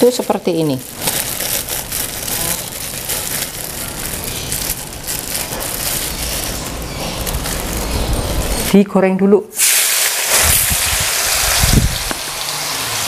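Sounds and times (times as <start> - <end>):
plastic bag crinkling: 0.0 - 8.8.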